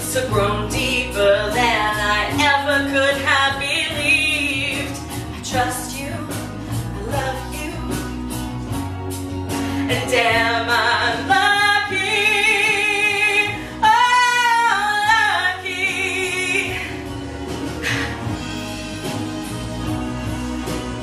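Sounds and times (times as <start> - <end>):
woman singing: 0.0 - 8.4, 9.7 - 17.2
instrumental accompaniment: 0.0 - 21.0.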